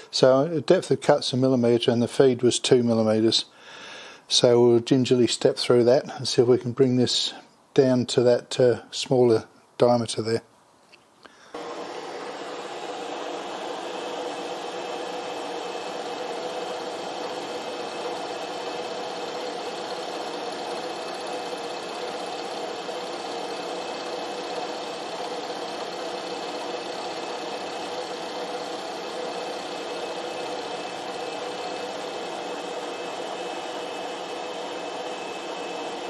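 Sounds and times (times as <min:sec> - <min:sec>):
milling machine cutting metal: 0:11.6 - 0:36.0.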